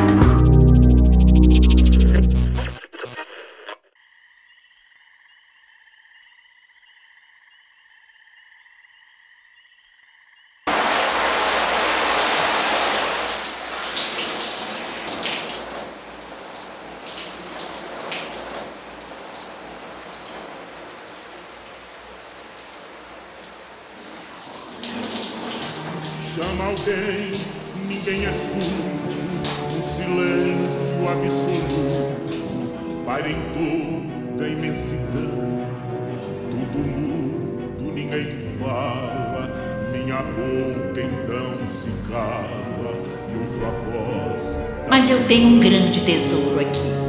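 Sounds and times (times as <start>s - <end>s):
shower spraying water: 10.7s - 33.2s.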